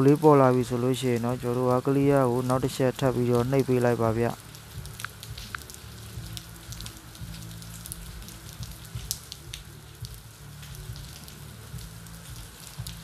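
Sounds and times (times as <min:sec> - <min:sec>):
faint crackles and clicks: 0:03.2 - 0:13.0.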